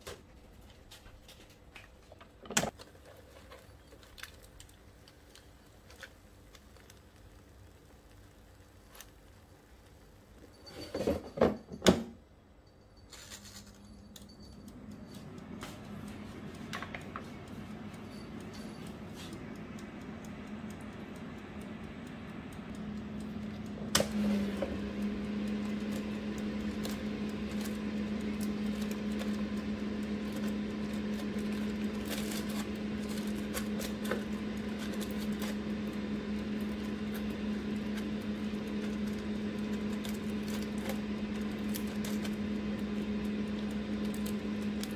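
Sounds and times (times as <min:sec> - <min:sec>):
fan motor humming: 0:13.1 - 0:44.9
click: 0:14.2 - 0:24.2.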